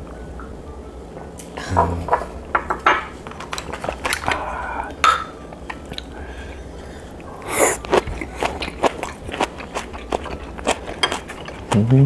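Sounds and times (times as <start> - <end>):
wet chewing: 3.4 - 5.0, 7.1 - 12.0.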